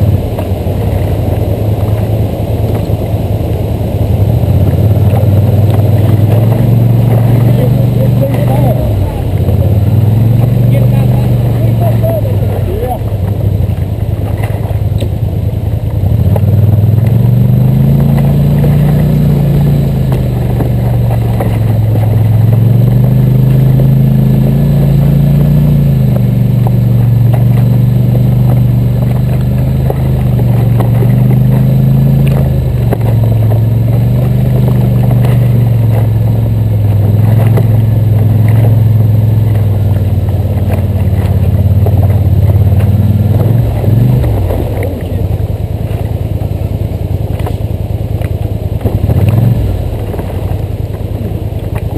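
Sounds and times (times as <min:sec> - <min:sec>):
atv engine revving: 0:00.0 - 0:51.9.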